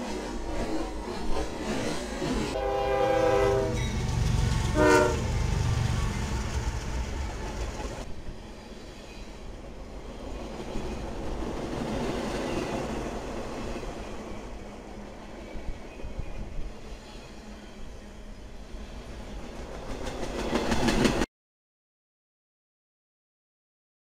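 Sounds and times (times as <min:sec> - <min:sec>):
freight train rumbling past: 0:00.0 - 0:21.3
locomotive horn blasts: 0:02.6 - 0:04.0, 0:04.6 - 0:05.4
wheels clacking over rails: 0:03.8 - 0:08.1.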